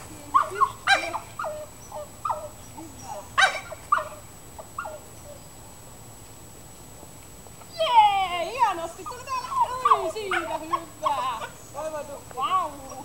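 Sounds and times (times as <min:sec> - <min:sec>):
dog barking excitedly: 0:00.3 - 0:02.6, 0:03.2 - 0:05.0, 0:09.0 - 0:11.6.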